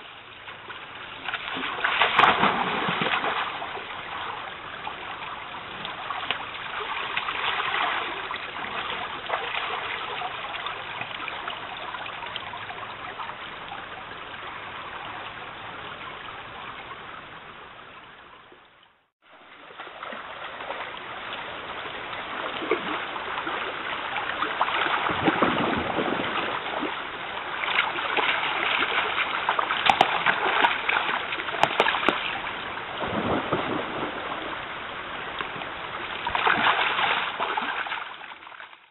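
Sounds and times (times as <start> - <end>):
stream running over stones: 0.0 - 38.9
bear splashing in water: 0.5 - 11.0, 21.8 - 34.4, 35.4 - 38.8.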